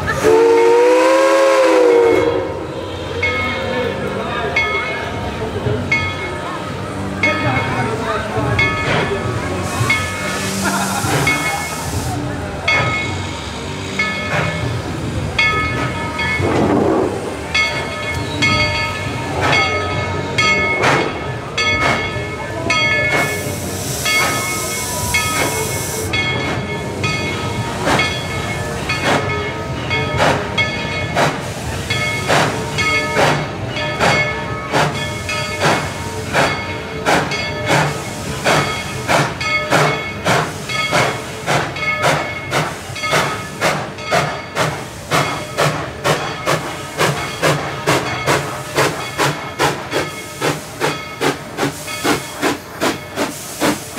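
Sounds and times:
steam locomotive exhaust beats: 0.0 - 3.3, 6.8 - 53.9
steam hiss: 9.0 - 19.5, 22.8 - 29.5, 30.1 - 53.9.

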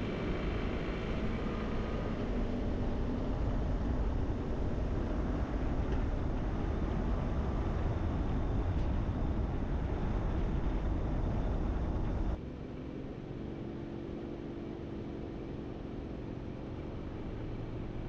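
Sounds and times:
vehicle road and wind noise: 0.0 - 18.0
quiet steady hum: 0.1 - 12.4.

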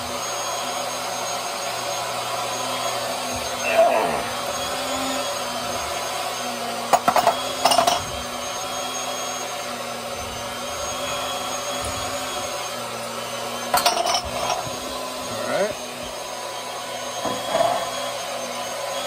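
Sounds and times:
electric pump whirring: 0.0 - 19.0
hand tools clanking on pipes: 6.9 - 8.1.

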